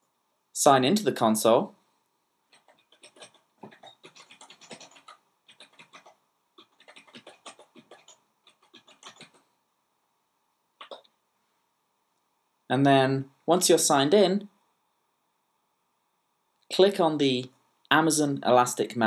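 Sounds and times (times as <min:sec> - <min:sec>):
keyboard typing: 0:02.5 - 0:09.5, 0:10.8 - 0:11.1.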